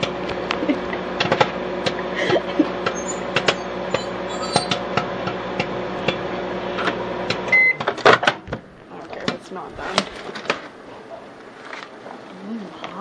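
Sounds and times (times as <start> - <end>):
popcorn popping: 0.0 - 10.8
microwave oven hum: 0.0 - 13.0
microwave beep: 2.9 - 4.8, 7.5 - 7.9.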